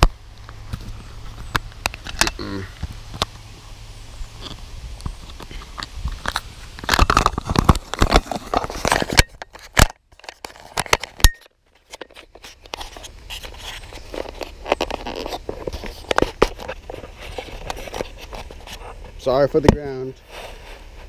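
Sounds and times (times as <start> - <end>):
microphone handling noise: 0.0 - 9.8.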